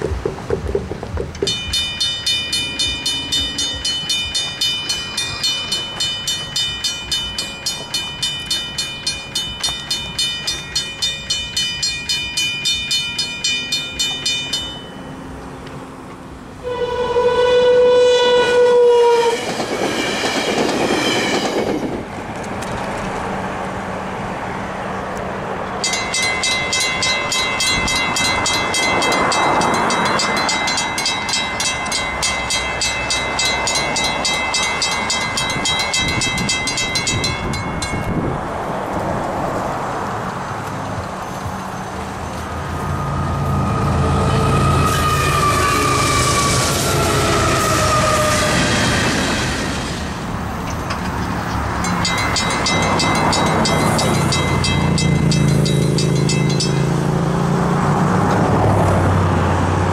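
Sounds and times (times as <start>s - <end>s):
train rumble: 0.0s - 59.9s
railroad crossing bells ringing: 1.4s - 21.9s, 25.7s - 57.8s
train horn: 16.6s - 19.6s.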